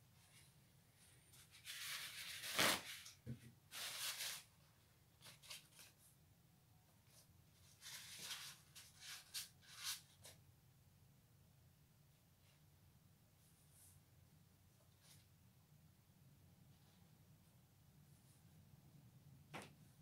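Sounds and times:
paper towel rustling: 0:01.0 - 0:04.6.

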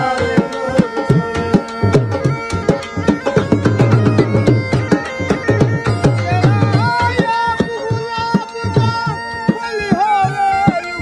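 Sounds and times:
drum beating quick rhythm: 0:00.0 - 0:10.8
bagpipe melody with drone: 0:00.0 - 0:11.0.

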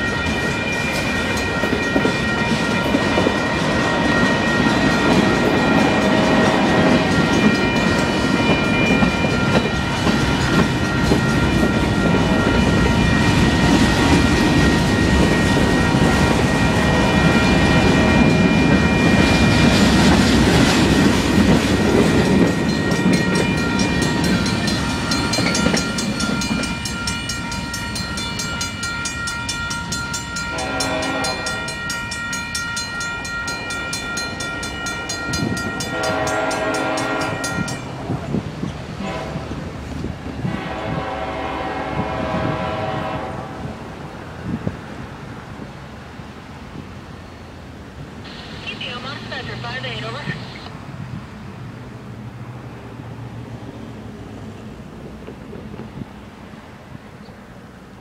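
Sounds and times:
crossing bell ringing: 0:00.0 - 0:38.2
freight train rumble: 0:00.0 - 0:58.0.

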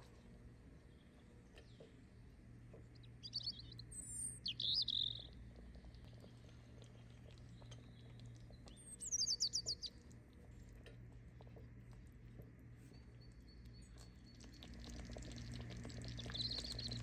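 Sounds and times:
small bird chirping: 0:02.9 - 0:06.3, 0:07.2 - 0:10.2, 0:12.8 - 0:17.0.

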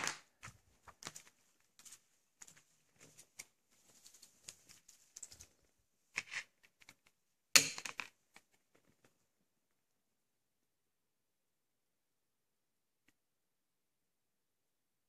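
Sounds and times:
paper rustling: 0:00.0 - 0:06.6.

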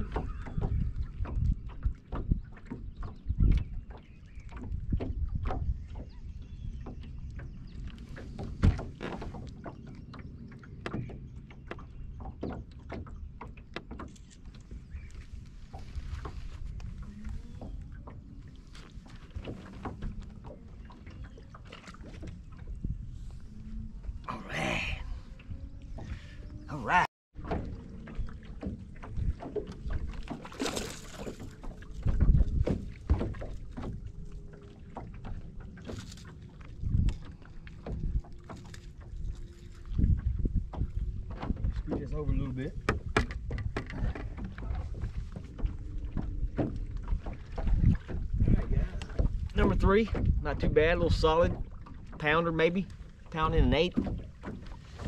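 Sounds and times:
knocks and slaps on boat hull: 0:00.0 - 0:14.1, 0:27.4 - 0:36.2, 0:39.9 - 0:52.3, 0:53.3 - 0:55.0
water noise: 0:00.0 - 0:55.0
fish splashing at surface: 0:30.3 - 0:31.7.

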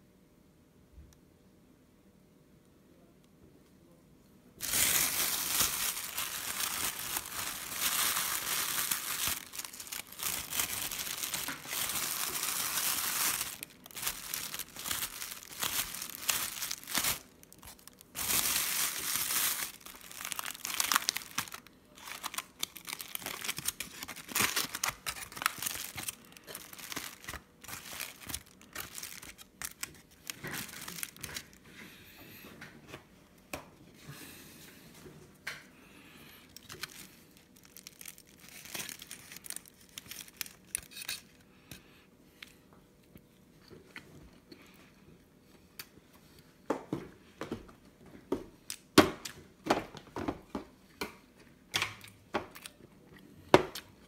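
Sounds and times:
foil wrapper crinkling: 0:04.6 - 0:31.6, 0:36.5 - 0:41.4
plastic bag crinkling: 0:04.6 - 0:31.6, 0:36.5 - 0:41.3.

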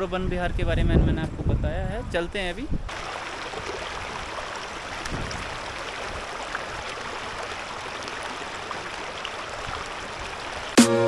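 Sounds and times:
river flowing over stones: 0:02.9 - 0:11.0.

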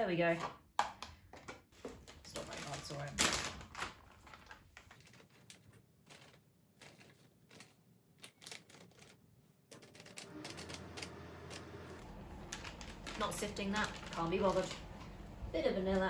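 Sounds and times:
plastic bags crinkling: 0:01.8 - 0:09.2, 0:12.0 - 0:15.4.

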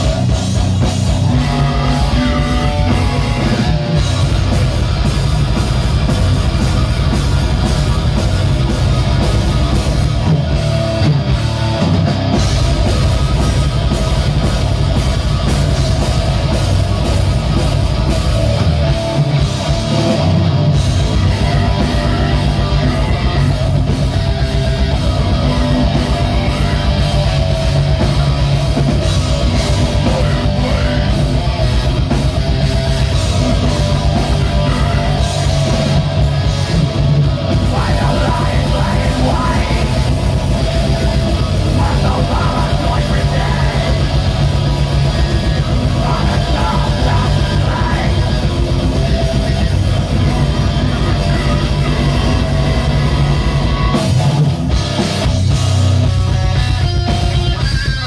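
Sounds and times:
distorted electric guitars: 0:00.0 - 0:58.0
drum kit: 0:00.0 - 0:58.0
person singing: 0:37.5 - 0:40.4, 0:41.6 - 0:44.2, 0:45.7 - 0:49.0.

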